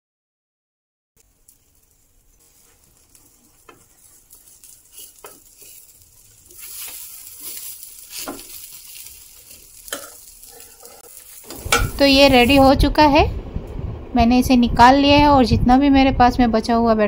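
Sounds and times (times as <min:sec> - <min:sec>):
omelette sizzling in oil: 0:01.2 - 0:12.8
metal spatula scraping pan: 0:02.4 - 0:12.7.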